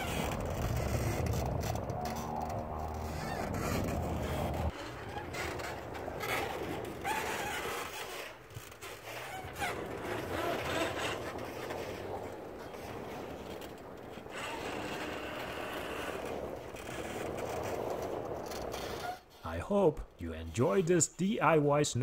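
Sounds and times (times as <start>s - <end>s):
truck engine humming: 0.0s - 6.2s
plow scraping through snow: 0.0s - 19.3s.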